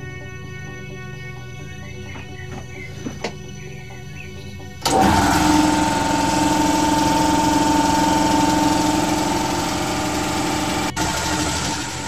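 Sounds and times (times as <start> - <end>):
electric air compressor running: 4.8 - 12.0.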